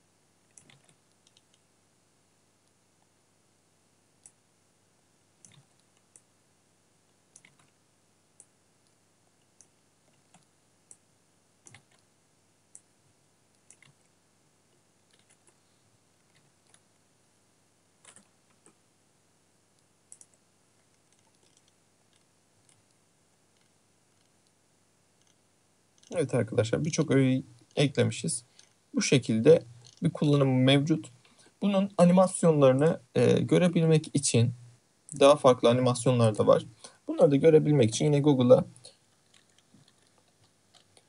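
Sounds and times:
mouse and keyboard clicks: 0:00.5 - 0:01.6, 0:07.3 - 0:07.8, 0:11.6 - 0:12.0, 0:13.6 - 0:14.1, 0:15.0 - 0:15.6, 0:18.0 - 0:18.8, 0:20.1 - 0:20.4, 0:21.0 - 0:23.0, 0:39.3 - 0:41.0.

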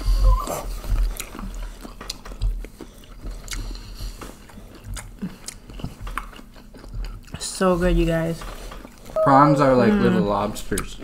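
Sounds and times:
wet chewing of prawns: 0:00.4 - 0:07.5.

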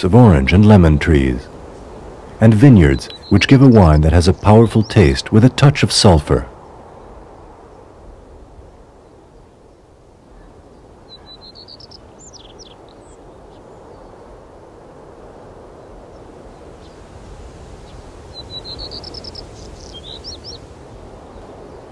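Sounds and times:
low outdoor hum: 0:00.0 - 0:16.8
songbird singing: 0:00.0 - 0:21.9.

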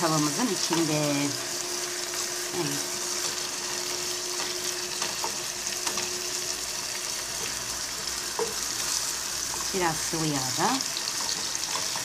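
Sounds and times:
meat sizzling in a pan: 0:00.0 - 0:12.0
wooden spoon stirring meat: 0:02.9 - 0:12.0.

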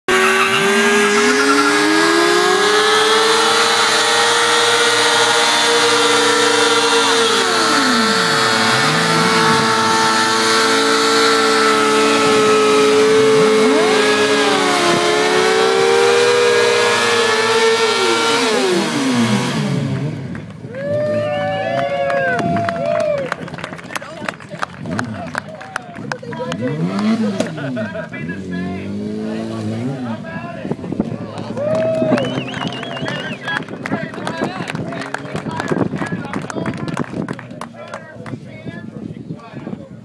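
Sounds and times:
engines revving up and down: 0:00.0 - 0:21.6, 0:26.4 - 0:36.0
motorcycle engine at high revs: 0:00.1 - 0:20.5, 0:26.4 - 0:30.3.

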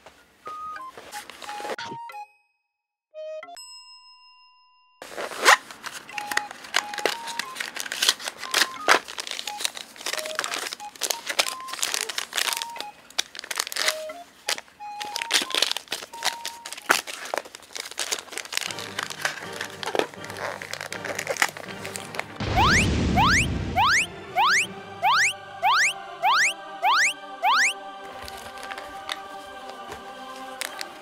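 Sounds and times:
paper packet crinkling: 0:05.0 - 0:22.5, 0:28.1 - 0:31.0
soft background music: 0:05.1 - 0:31.0.

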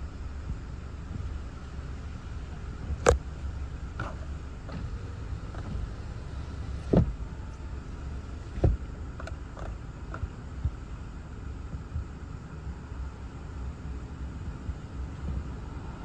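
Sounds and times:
wind buffeting car: 0:00.0 - 0:16.0
sharp knocks on car: 0:06.8 - 0:07.2, 0:08.6 - 0:08.9.

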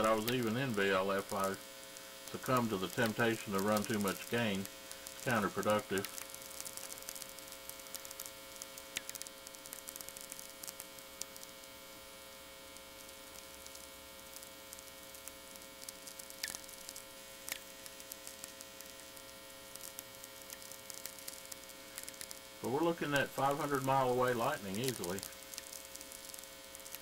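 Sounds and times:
mains hum: 0:00.0 - 0:27.0.

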